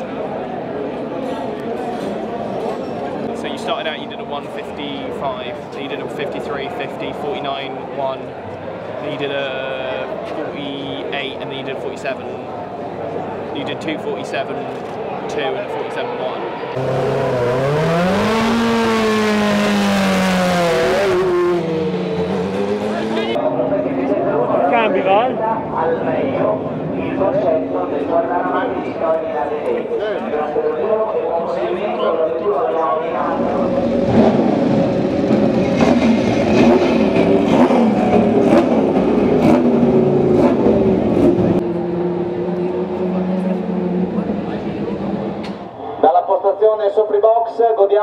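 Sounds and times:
racing car engine revving: 16.7 - 23.4, 33.1 - 45.6.

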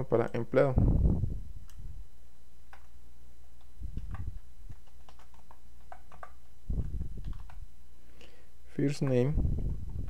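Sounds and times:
steady low hum: 0.0 - 10.0
keyboard and mouse clicks: 2.7 - 2.9, 3.6 - 7.6, 9.0 - 9.3.

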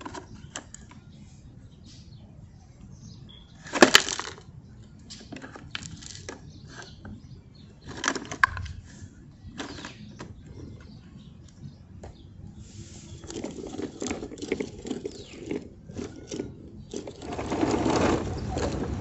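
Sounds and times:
plastic toy trucks clattering: 0.0 - 1.0, 3.6 - 4.5, 5.1 - 7.1, 7.8 - 8.8, 9.5 - 10.8, 13.2 - 19.0.

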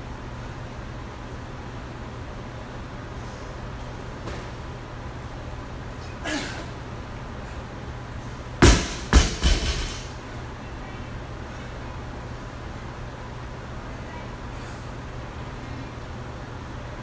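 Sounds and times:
barbell dropped on rubber floor: 8.6 - 10.2.

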